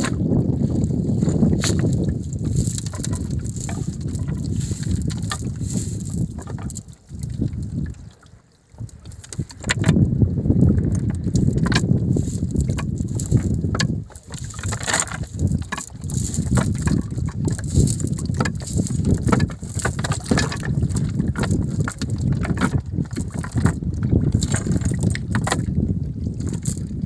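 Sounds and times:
wind buffeting microphone: 0.0 - 27.0
cast net and sinkers clicking: 1.3 - 6.9, 10.9 - 22.8.

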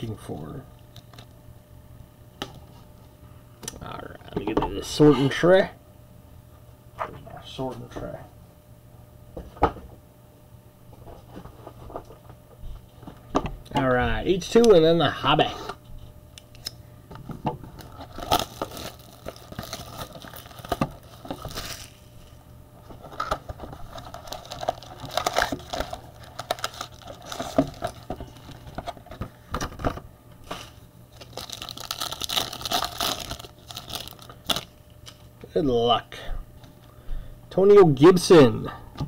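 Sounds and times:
foil wrapper tearing and crinkling: 17.8 - 22.4, 23.1 - 28.8, 30.4 - 35.2.

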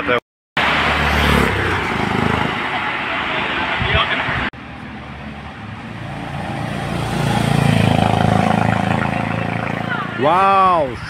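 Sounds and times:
motorcycle passing by: 0.8 - 2.8, 4.8 - 10.4.

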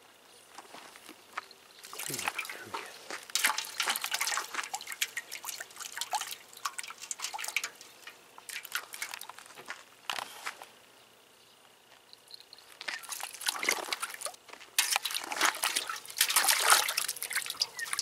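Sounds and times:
water splashing in metal pot: 1.8 - 9.4, 12.9 - 18.0.

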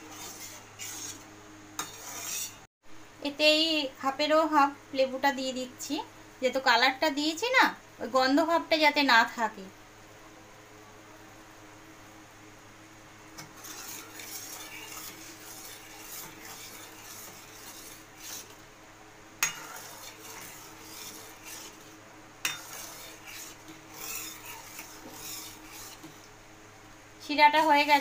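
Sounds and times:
ladle scraping through syrup: 0.0 - 1.2, 13.4 - 18.6, 19.4 - 26.3.

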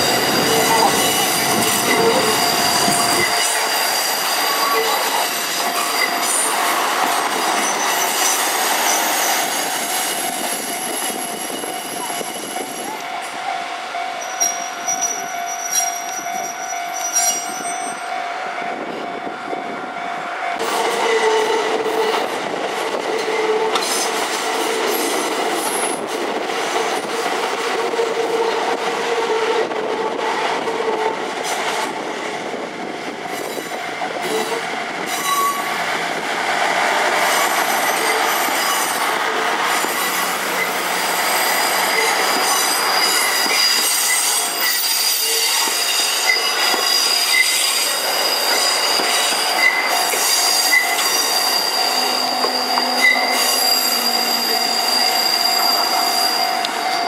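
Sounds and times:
high wheel squeal: 0.0 - 13.0, 14.2 - 18.1, 37.2 - 57.0
diesel railcar engine: 0.0 - 57.0
short wheel squeaks: 43.2 - 57.0.

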